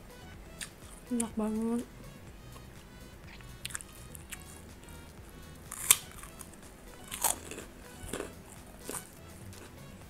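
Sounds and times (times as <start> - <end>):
faint background music: 0.0 - 10.0
wet chewing sounds: 2.6 - 4.7, 5.6 - 9.8.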